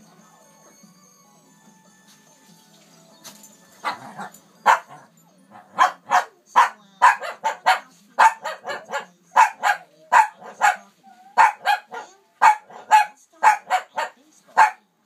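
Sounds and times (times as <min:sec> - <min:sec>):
small dog barking: 0:03.8 - 0:14.8.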